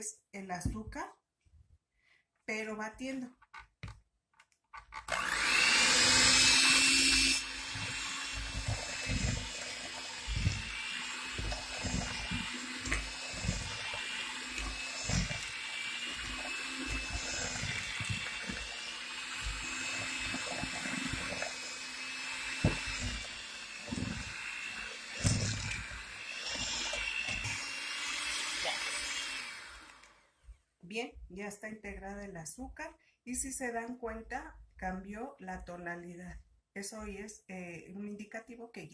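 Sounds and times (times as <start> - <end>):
electric hand mixer whining: 5.0 - 30.3.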